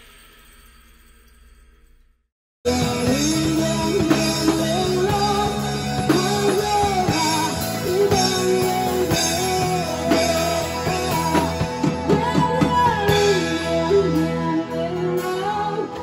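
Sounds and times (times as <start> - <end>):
bass guitar: 2.7 - 16.0
drum kit: 2.7 - 16.0
electric keyboard: 2.7 - 16.0
man singing: 2.7 - 16.0.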